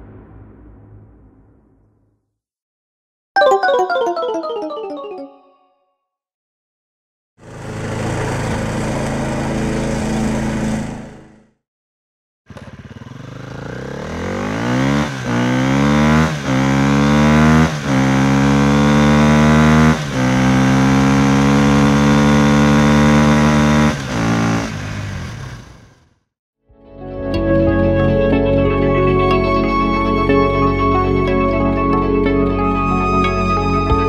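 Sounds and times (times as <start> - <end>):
lawn mower engine running: 7.4 - 11.3, 12.5 - 14.7
motorcycle accelerating through gears: 7.4 - 11.4, 12.5 - 26.2.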